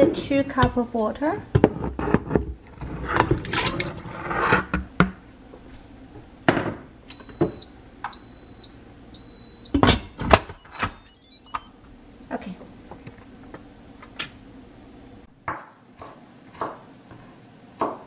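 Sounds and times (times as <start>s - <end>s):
food sliding into water: 3.1s - 4.7s
high electronic beeps: 10.6s - 11.8s.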